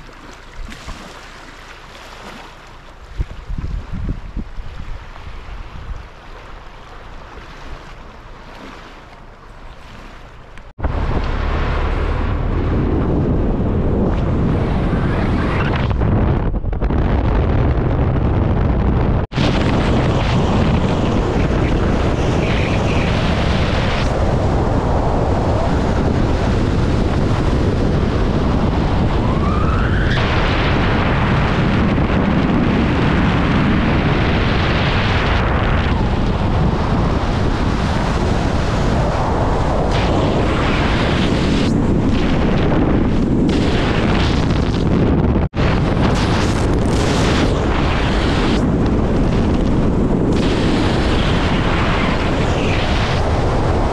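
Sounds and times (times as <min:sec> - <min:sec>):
wind buffeting microphone: 0:02.8 - 0:08.8, 0:10.6 - 0:53.9.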